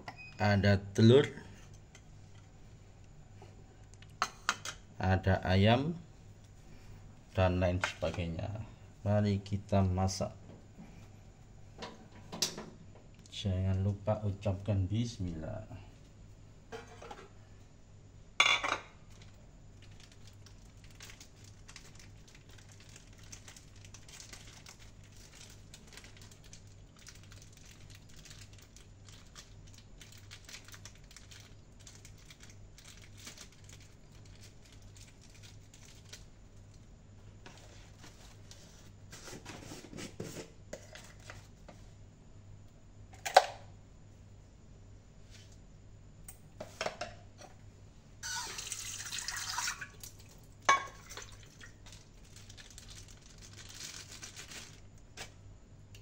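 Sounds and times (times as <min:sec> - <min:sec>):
low steady hum: 0:00.0 - 0:56.0
packaging crinkling: 0:19.1 - 0:36.9, 0:51.0 - 0:55.4.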